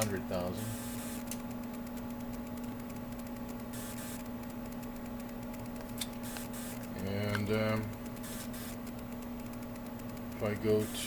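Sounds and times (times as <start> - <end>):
electrical hum: 0.0 - 11.0.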